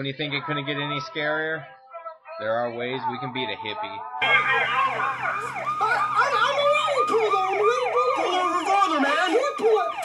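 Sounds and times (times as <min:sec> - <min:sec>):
police siren sweeping: 0:04.2 - 0:10.0.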